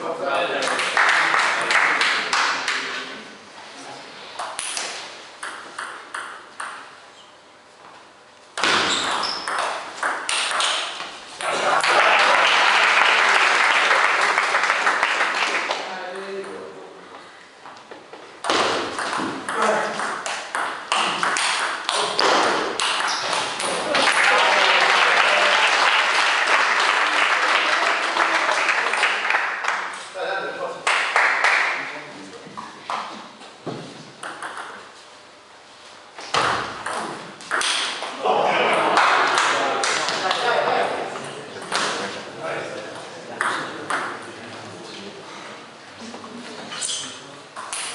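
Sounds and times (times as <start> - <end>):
spectators clapping: 0.6 - 3.0, 10.2 - 15.9, 20.2 - 30.1, 30.8 - 32.0, 38.8 - 40.6
table tennis ball pinging: 5.4 - 7.0, 8.6 - 11.0, 18.4 - 23.8, 34.2 - 34.8, 36.8 - 37.9.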